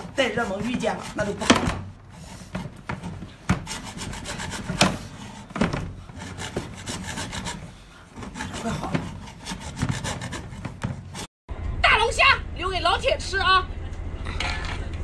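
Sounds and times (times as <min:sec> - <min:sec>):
hacksaw cutting shell: 0:00.0 - 0:11.3.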